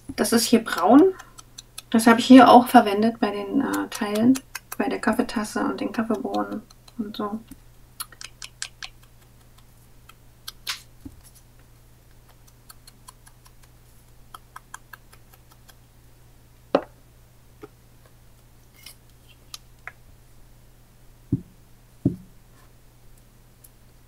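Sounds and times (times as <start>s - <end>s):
ink pad tapping on paper: 21.3s - 22.3s.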